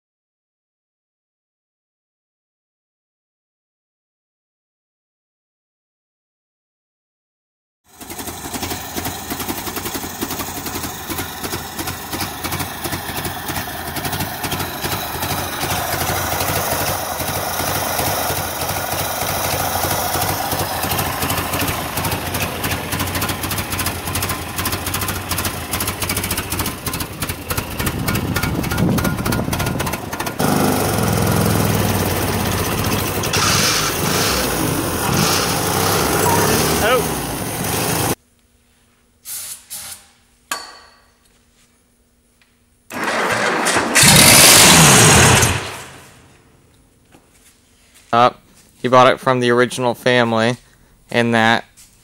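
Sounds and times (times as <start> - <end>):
car engine idling: 7.9 - 38.2.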